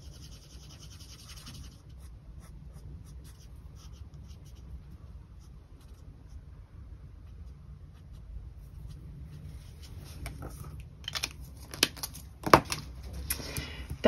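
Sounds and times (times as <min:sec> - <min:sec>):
marker scratching on paper: 0:00.0 - 0:06.4.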